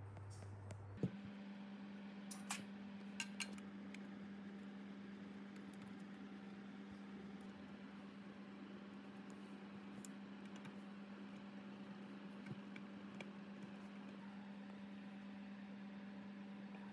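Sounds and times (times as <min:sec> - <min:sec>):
faint steady hum: 0:00.0 - 0:16.9.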